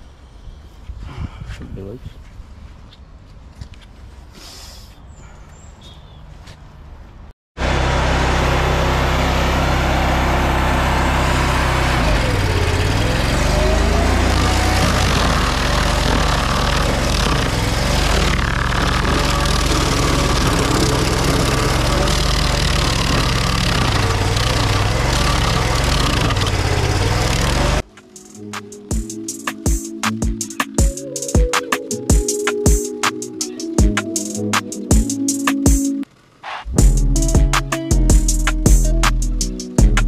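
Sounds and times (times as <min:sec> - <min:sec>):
cutting wheel grinding wood: 0:07.6 - 0:27.8
stump grinder engine: 0:07.6 - 0:27.8.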